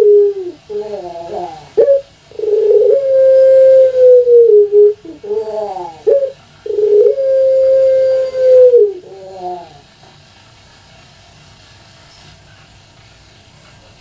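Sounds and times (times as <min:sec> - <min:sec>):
dove cooing: 0:00.0 - 0:10.0.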